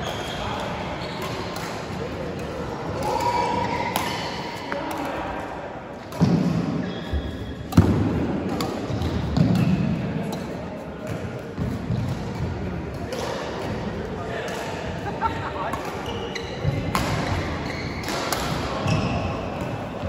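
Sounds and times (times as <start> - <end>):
racket hitting shuttlecock: 0.6 - 5.2, 7.7 - 13.8, 15.7 - 19.8.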